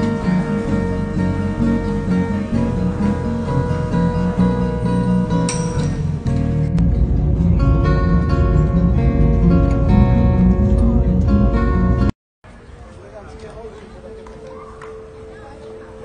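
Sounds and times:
bass: 0.0s - 12.1s
strummed acoustic guitar music: 0.0s - 12.1s.

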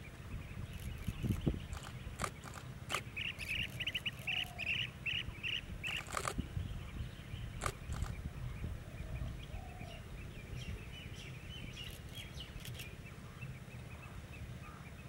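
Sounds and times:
birds chirping: 0.0s - 15.0s
sharp clicks: 0.8s - 4.6s, 5.9s - 6.4s, 7.6s - 8.2s.

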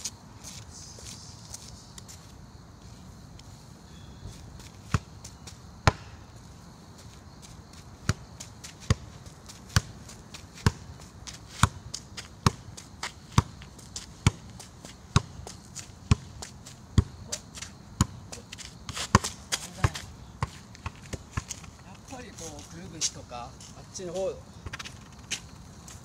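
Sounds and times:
rough scuffing: 0.0s - 16.8s, 18.4s - 26.0s
football kicks: 5.8s - 6.2s.

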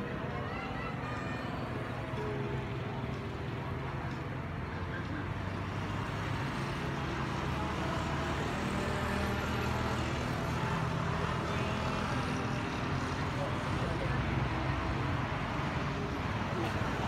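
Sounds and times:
motor scooters passing: 4.5s - 17.0s.

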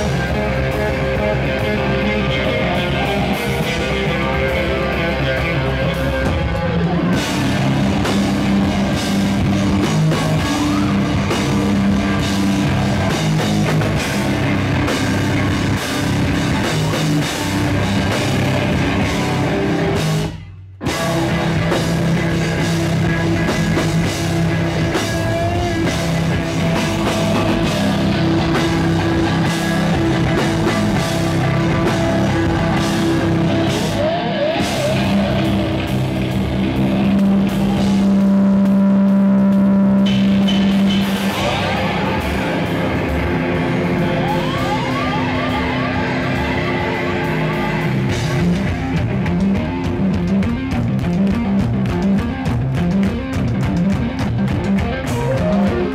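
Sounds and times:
live rock band playing: 0.0s - 55.9s
gliding guitar notes: 20.9s - 55.9s.

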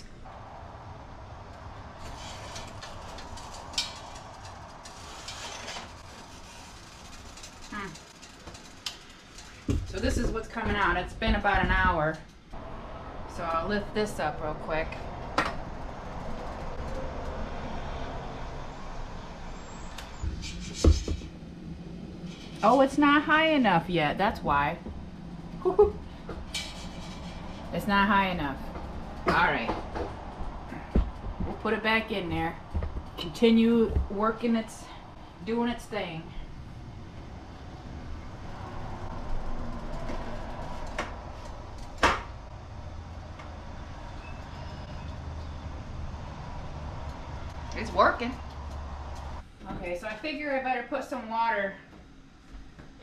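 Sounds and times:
low hiss and rumble: 0.0s - 43.9s
knocks and sharp thump: 20.3s - 21.3s.

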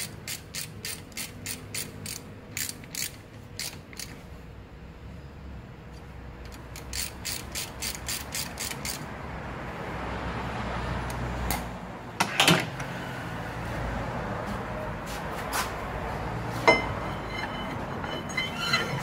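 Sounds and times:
metallic clank: 16.6s - 19.0s.

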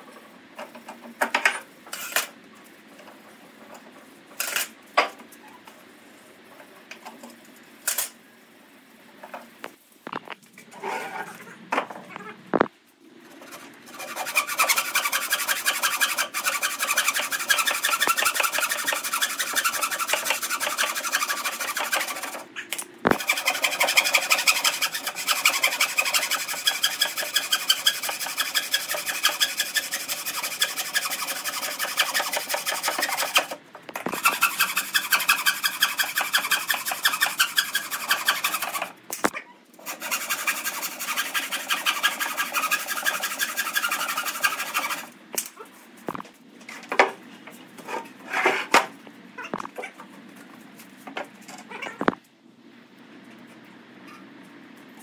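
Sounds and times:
rasping strokes on wood: 13.4s - 22.4s, 23.1s - 38.9s, 39.8s - 45.1s.

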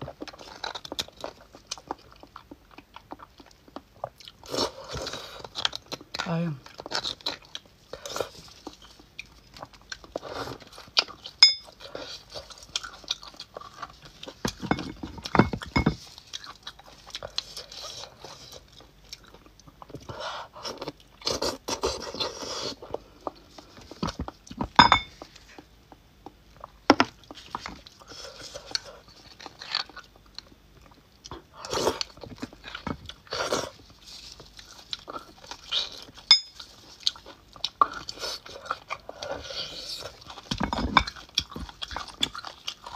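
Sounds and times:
chewing and slurping: 27.2s - 42.9s.

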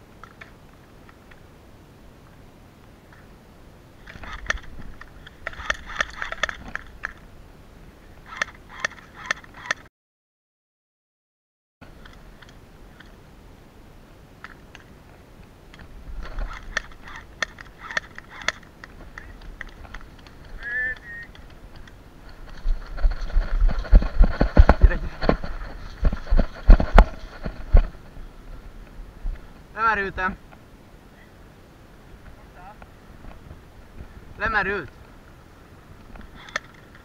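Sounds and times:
footsteps through dry grass: 21.3s - 29.6s.

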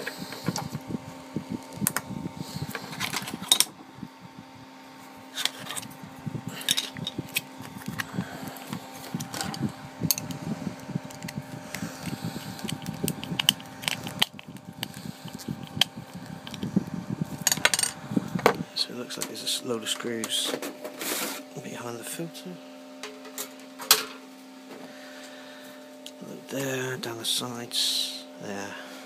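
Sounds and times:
electric fan humming: 0.0s - 29.0s.

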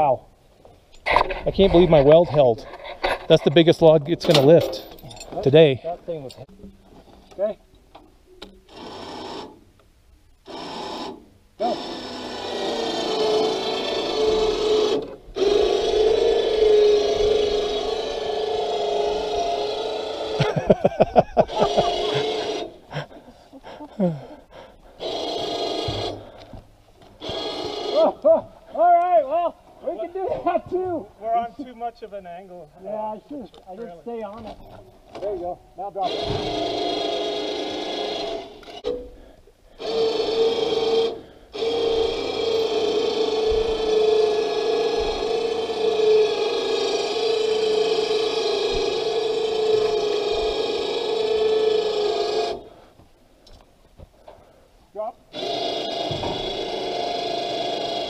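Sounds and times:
electric winch whining: 10.4s - 22.9s, 25.0s - 26.5s, 27.2s - 28.3s, 36.0s - 39.0s, 39.7s - 52.8s, 55.3s - 58.0s.

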